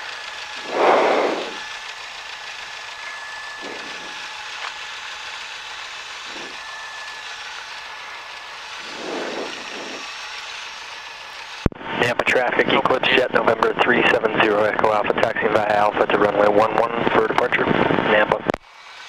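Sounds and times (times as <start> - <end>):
plane engine idling: 0.0 - 11.1
soft whooshes: 0.6 - 1.6.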